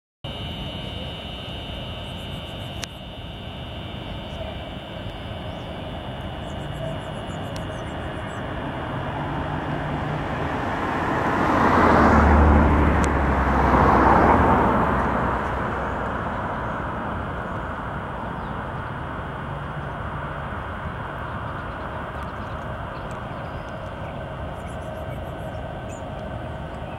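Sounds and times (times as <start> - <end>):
outdoor background noise: 0.2 - 26.9
vehicle engine rumble passing: 6.5 - 26.9.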